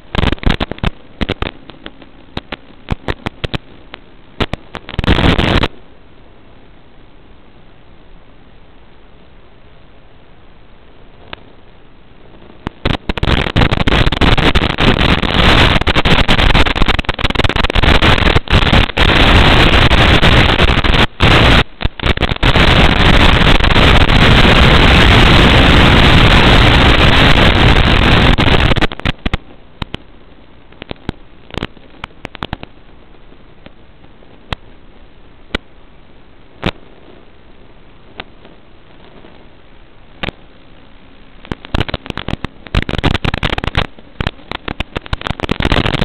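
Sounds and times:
loud static hiss: 0:00.0 - 0:46.0
scattered clicks: 0:00.1 - 0:05.7, 0:27.2 - 0:30.1, 0:30.7 - 0:32.8, 0:40.2 - 0:40.4, 0:41.4 - 0:46.0.

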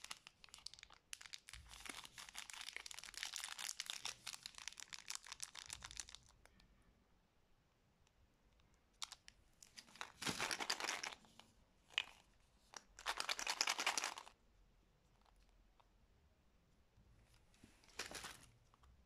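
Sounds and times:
plastic wrappers crinkling: 0:00.0 - 0:06.4, 0:09.0 - 0:14.4, 0:17.8 - 0:18.5.

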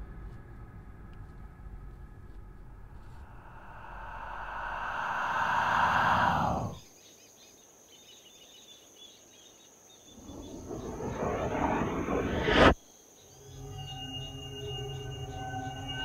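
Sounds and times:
rising noise swells: 0:02.4 - 0:06.8, 0:10.2 - 0:12.8.

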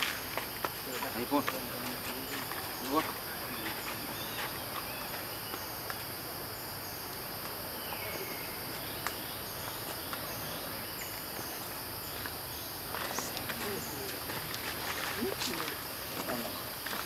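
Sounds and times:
insect trills: 0:00.0 - 0:17.0
insects chorus drone: 0:00.0 - 0:17.0.

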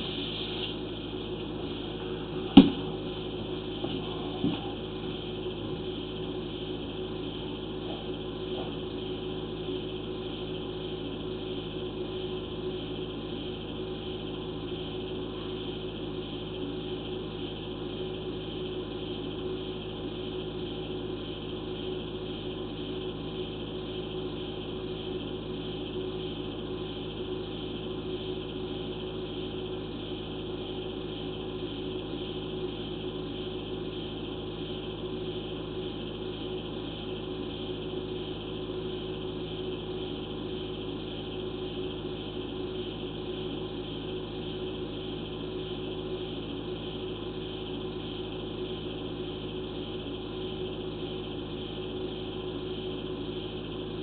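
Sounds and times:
steady hum and hiss: 0:00.0 - 0:54.0.

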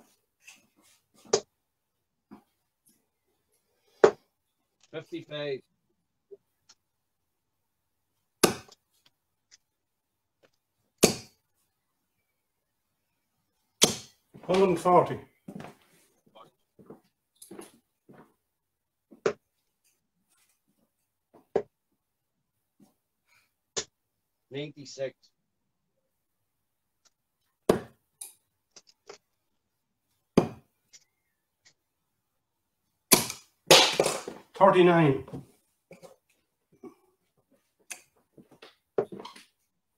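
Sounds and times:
darts thudding into dartboard: 0:13.8 - 0:14.6, 0:33.1 - 0:34.4.

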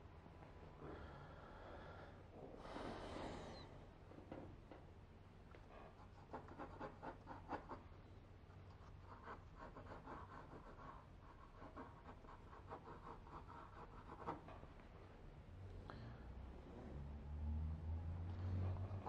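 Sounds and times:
pencil scratching on paper: 0:05.9 - 0:07.9, 0:08.8 - 0:14.7.

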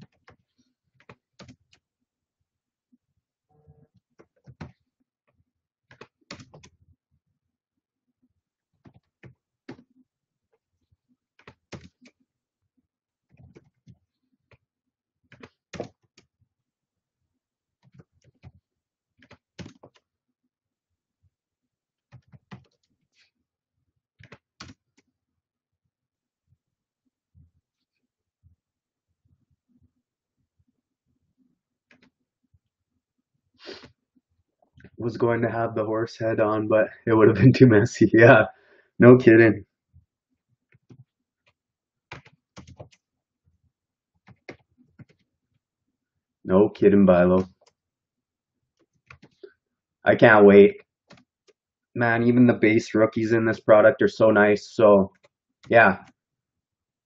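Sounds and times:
keyboard typing: 0:00.0 - 0:01.8, 0:04.2 - 0:04.8, 0:05.9 - 0:06.8, 0:11.4 - 0:12.2, 0:15.3 - 0:16.3, 0:19.2 - 0:20.0, 0:22.1 - 0:22.9, 0:24.2 - 0:25.1, 0:42.1 - 0:43.1, 0:44.2 - 0:45.3, 0:48.9 - 0:49.5
computer keyboard typing: 0:01.0 - 0:01.8, 0:11.4 - 0:12.1, 0:19.2 - 0:20.0, 0:24.2 - 0:24.8, 0:42.1 - 0:43.0, 0:49.1 - 0:49.4.

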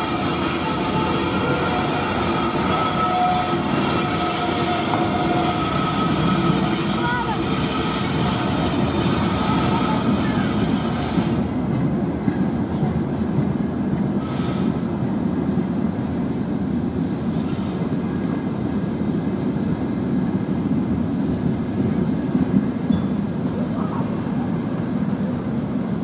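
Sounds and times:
train wheels rumbling on rails: 0:00.0 - 0:26.0
high-pitched wheel squeals: 0:00.1 - 0:10.2.

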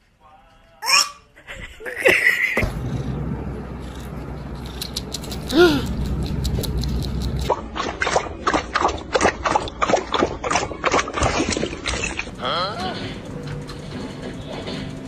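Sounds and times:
dog lapping from metal bowl: 0:07.2 - 0:12.3.

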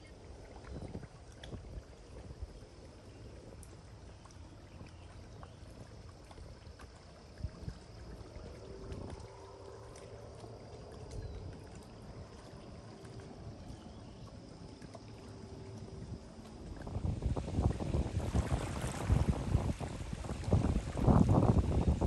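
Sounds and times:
wind gusting on microphone: 0:16.7 - 0:22.0.

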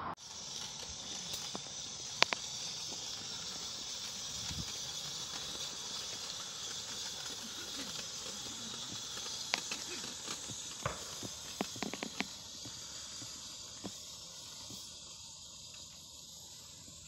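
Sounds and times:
steam hissing: 0:00.1 - 0:17.0.

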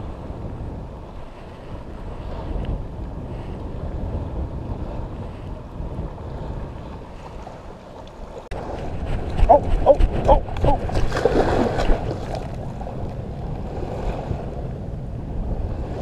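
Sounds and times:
surf washing on beach: 0:00.0 - 0:16.0
wind buffeting microphone: 0:00.0 - 0:16.0.

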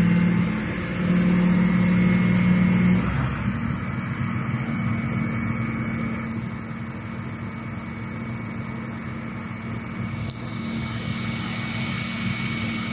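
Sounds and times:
diesel engine idling: 0:00.0 - 0:12.9
high hiss: 0:10.0 - 0:12.9.

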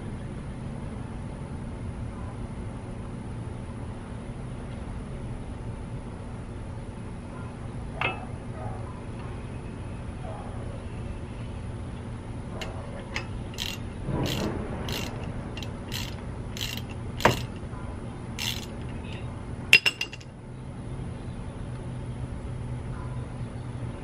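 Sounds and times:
ratchet wrench clicking: 0:13.2 - 0:17.6, 0:18.4 - 0:19.0, 0:19.8 - 0:20.2
sharp metal clinks: 0:13.2 - 0:17.6, 0:18.4 - 0:18.8, 0:19.8 - 0:20.3.

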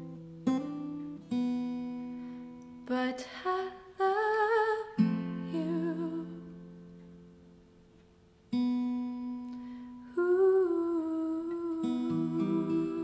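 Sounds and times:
acoustic guitar chord strummed: 0:00.0 - 0:13.0.

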